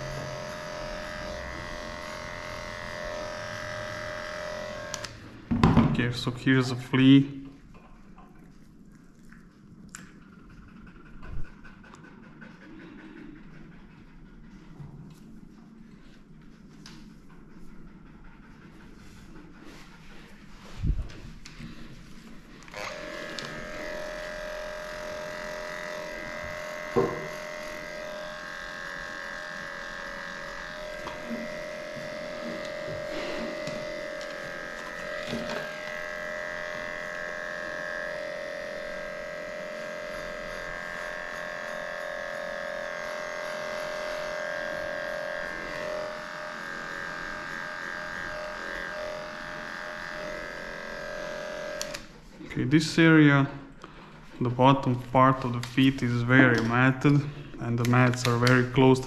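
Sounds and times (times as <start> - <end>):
electric clippers humming: 0.0 - 5.8, 21.4 - 59.0.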